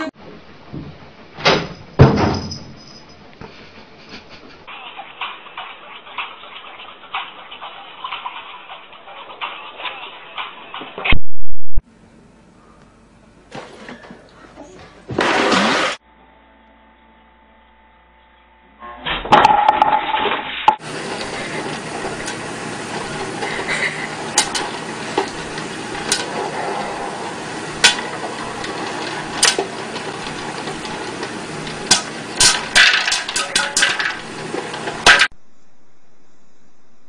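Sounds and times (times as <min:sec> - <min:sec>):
loud clatter: 0:19.3 - 0:35.3
popcorn popper running: 0:19.3 - 0:35.4
popcorn popping: 0:19.3 - 0:35.4.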